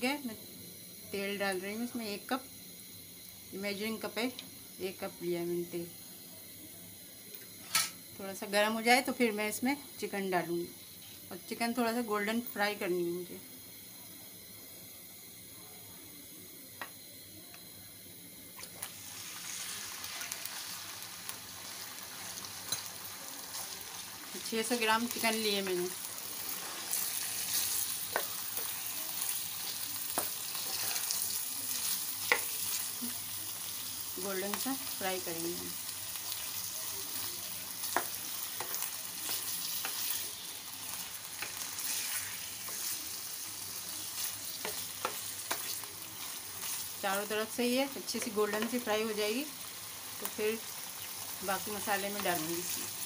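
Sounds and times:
hot oil hissing: 0.0 - 53.0
chicken frying sizzle: 16.5 - 53.0.

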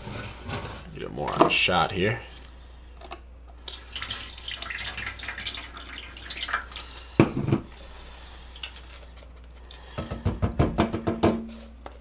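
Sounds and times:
paint splashing and dripping: 3.6 - 7.1, 7.7 - 9.2.

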